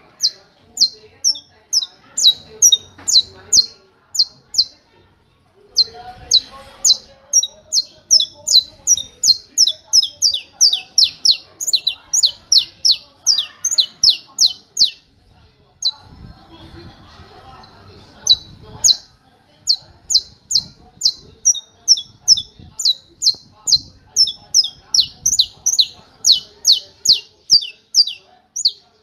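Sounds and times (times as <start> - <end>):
finch singing sharp high notes: 5.8 - 15.0, 19.7 - 28.8.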